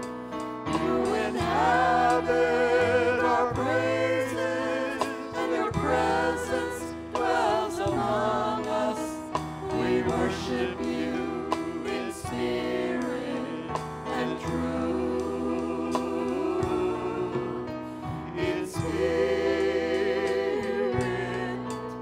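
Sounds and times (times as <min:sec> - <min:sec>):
congregation singing: 0:00.0 - 0:22.0
instrumental accompaniment: 0:00.0 - 0:22.0.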